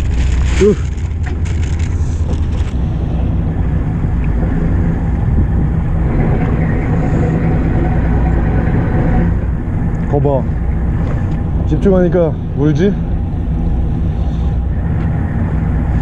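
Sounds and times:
plastic bag crinkling: 0.0s - 2.7s
boat engine rumbling: 0.0s - 16.0s.

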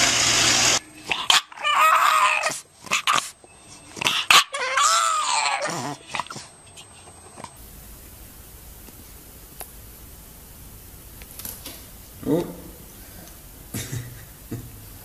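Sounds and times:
dog whining: 1.1s - 7.6s.

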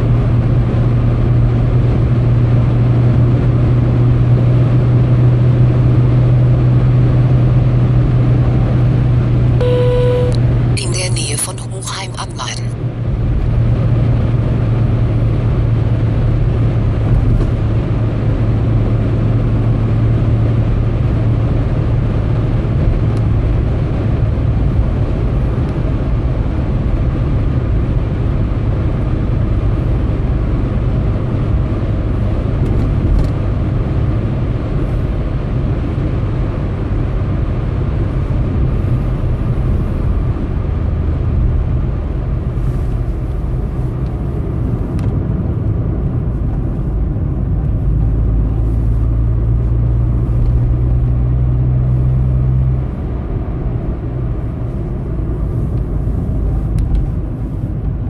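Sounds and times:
car road and engine noise: 0.0s - 58.0s.

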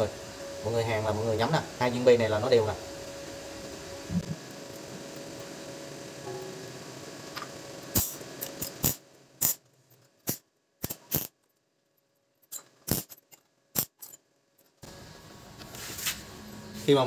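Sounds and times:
arc welder bursts: 7.9s - 9.6s, 10.2s - 11.4s, 12.8s - 13.1s.

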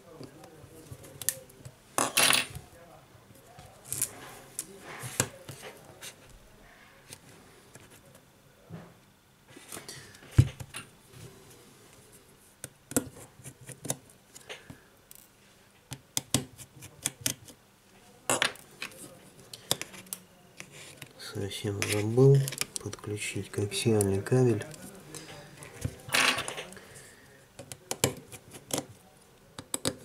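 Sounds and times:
tablet parts clicking and tapping: 27.6s - 28.9s, 29.6s - 30.0s.

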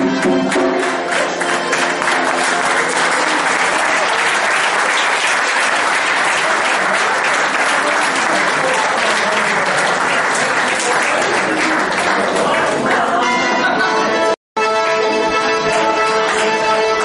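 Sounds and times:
dance music: 0.0s - 4.1s
crowd applauding: 0.0s - 13.3s, 15.2s - 17.0s.

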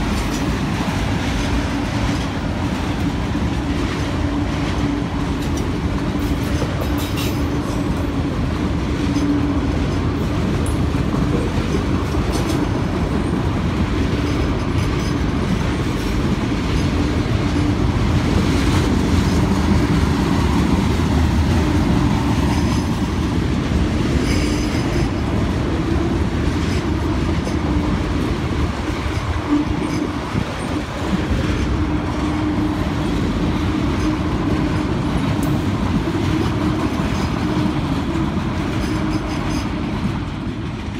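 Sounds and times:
freight train wheels clattering: 0.0s - 40.9s.

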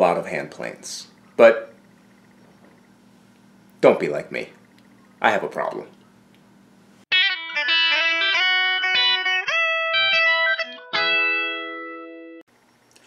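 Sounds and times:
faint room hum: 0.0s - 7.0s, 12.5s - 13.0s
plucked guitar notes: 7.1s - 12.4s.

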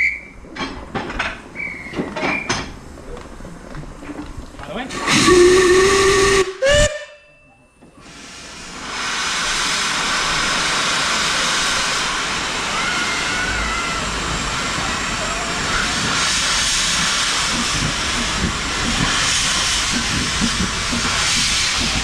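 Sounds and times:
steam hissing: 4.9s - 7.0s, 8.0s - 22.0s
steam locomotive whistle: 5.0s - 7.3s.

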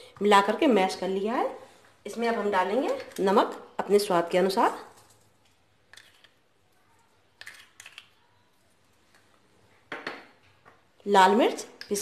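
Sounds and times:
spoon and bowls clicking: 7.4s - 8.2s.

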